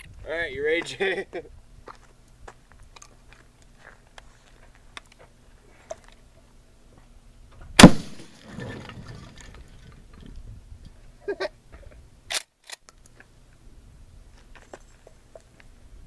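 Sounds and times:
shotgun blast with echo: 0:07.8 - 0:08.3.

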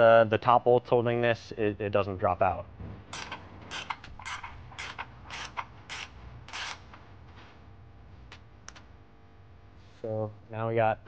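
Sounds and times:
ratchet wrench clicking: 0:03.2 - 0:06.8.

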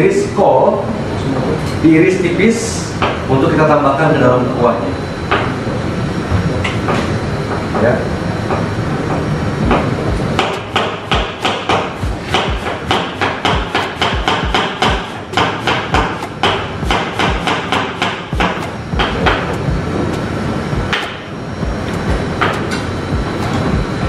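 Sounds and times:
knife chopping on cutting board: 0:10.4 - 0:19.7.

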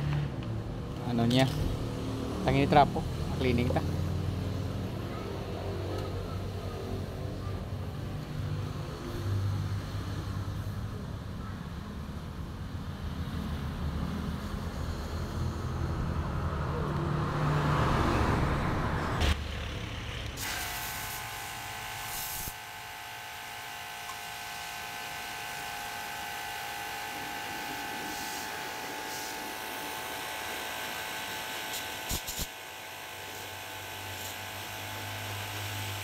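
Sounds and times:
pressure washer motor whine: 0:20.4 - 0:36.0.

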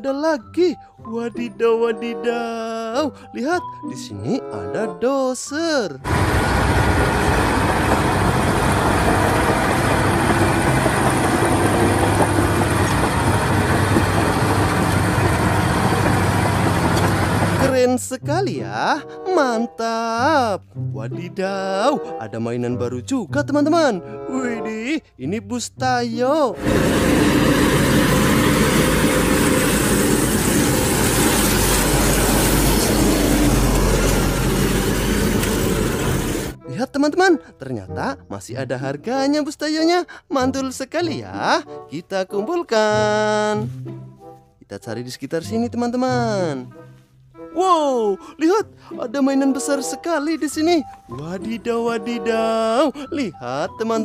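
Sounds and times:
bulldozer diesel engine drone: 0:06.1 - 0:17.7, 0:26.6 - 0:36.6
bus passing by: 0:06.1 - 0:17.7, 0:26.6 - 0:36.6.

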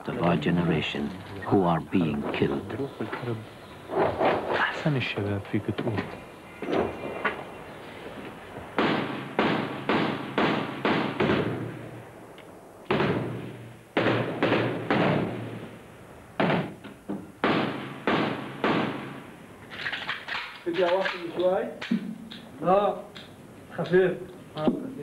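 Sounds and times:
rifle shots with echo: 0:08.8 - 0:11.8, 0:12.9 - 0:15.6, 0:17.4 - 0:19.2.

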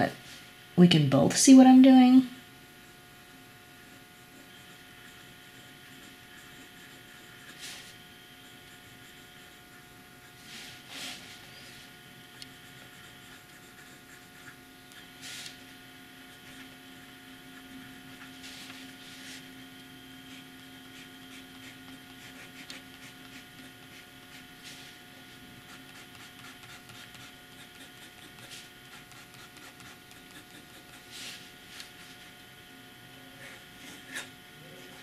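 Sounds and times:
steady low hum: 0:00.0 - 0:35.0
pen nib scratching on paper: 0:03.8 - 0:11.3, 0:12.3 - 0:15.6, 0:20.3 - 0:24.8, 0:25.6 - 0:31.5.

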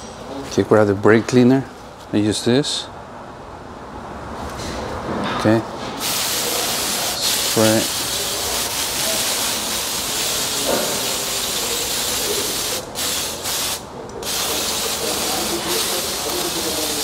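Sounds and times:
aerosol spray hissing: 0:06.0 - 0:17.0.

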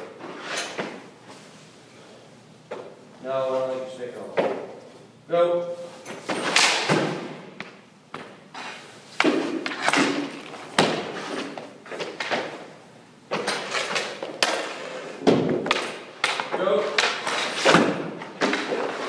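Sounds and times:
leg pads dropping on rink: 0:06.2 - 0:12.7, 0:13.3 - 0:19.0
pucks striking pads and boards: 0:06.3 - 0:12.7, 0:13.3 - 0:19.0.

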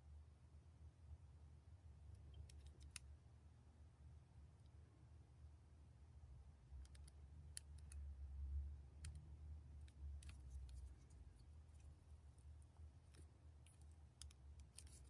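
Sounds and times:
fingers handling hair barrette: 0:02.2 - 0:03.1, 0:06.8 - 0:08.0, 0:09.8 - 0:15.0.

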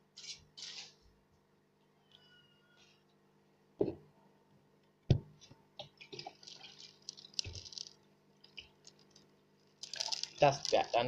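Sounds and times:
water splashing and dripping: 0:05.9 - 0:09.0, 0:09.8 - 0:11.0.

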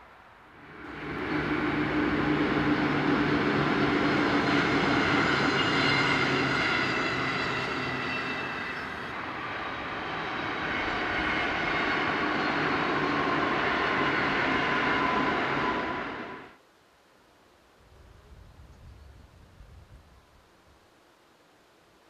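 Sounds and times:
electric train passing: 0:00.0 - 0:16.6.

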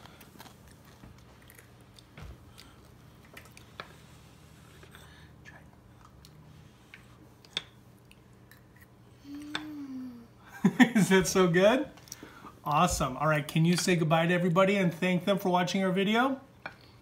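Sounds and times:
child chewing food: 0:00.0 - 0:10.3
faint low hum: 0:00.0 - 0:17.0.

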